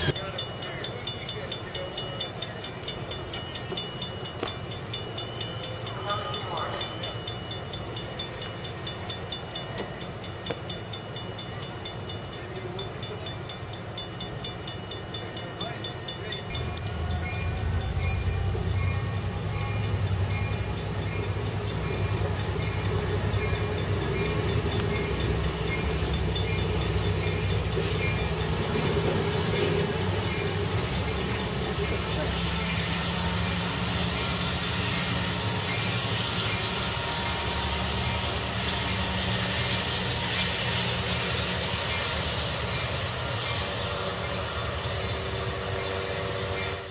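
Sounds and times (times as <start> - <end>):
short high beeps: 0.0 - 0.6
locomotive engine rumble: 0.0 - 46.9
train cars rolling past: 0.0 - 46.9.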